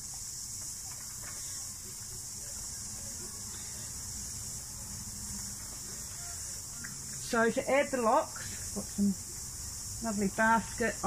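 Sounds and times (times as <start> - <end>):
cicadas droning: 0.0 - 11.0.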